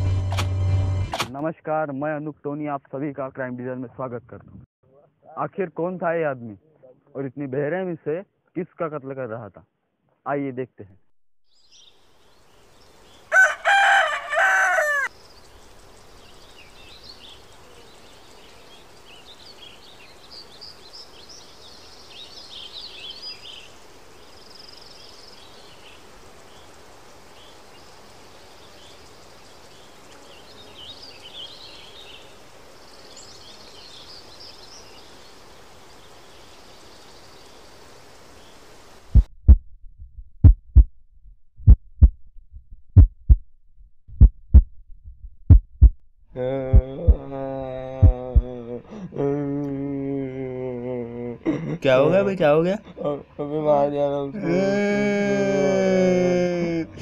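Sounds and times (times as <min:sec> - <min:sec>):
small birds twittering: 0:11.5 - 0:39.0
rooster crowing: 0:13.2 - 0:15.2
deep thumps: 0:39.1 - 0:41.0, 0:41.6 - 0:43.5, 0:44.1 - 0:46.1, 0:48.0 - 0:48.5.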